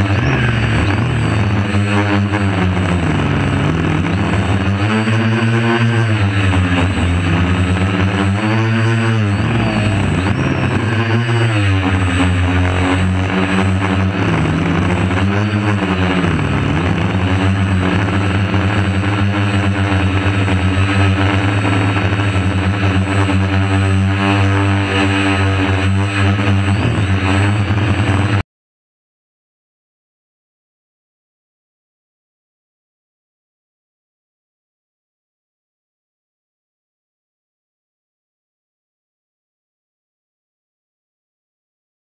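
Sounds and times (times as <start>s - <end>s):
quadcopter motors humming: 0.0s - 28.4s.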